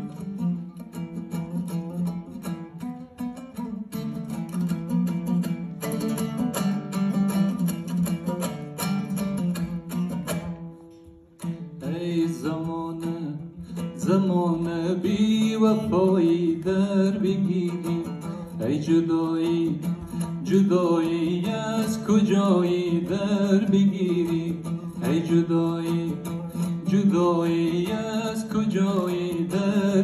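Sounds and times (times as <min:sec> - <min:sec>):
lute strummed rhythmically: 0:00.0 - 0:30.0
man singing: 0:11.4 - 0:30.0.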